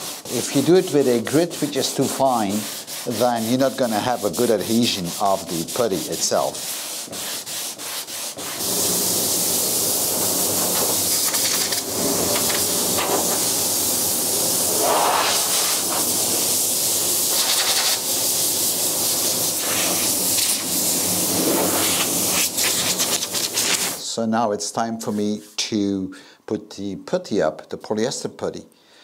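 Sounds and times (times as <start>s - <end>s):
sanding block rubbing: 0.0s - 24.0s
air blow gun hissing: 8.5s - 24.0s.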